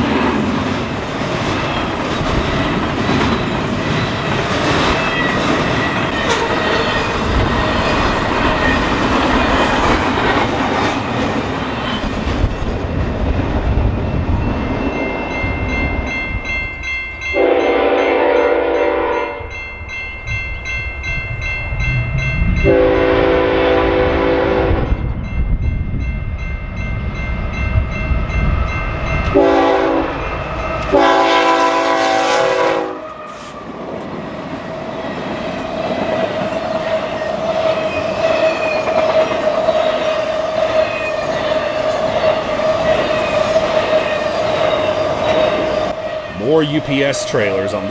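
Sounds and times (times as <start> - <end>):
freight train rumble and wheel clatter: 0.0 - 47.9
train air horn blasts: 17.4 - 19.5, 22.6 - 24.9, 29.3 - 30.2, 30.9 - 33.6.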